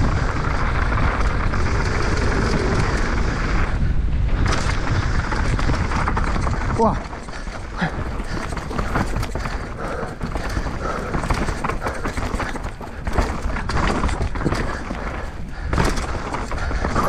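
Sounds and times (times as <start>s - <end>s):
tyres rumbling on dirt: 0.0s - 17.0s
wind buffeting microphone: 0.0s - 17.0s
bike rattling knocks: 4.3s - 17.0s.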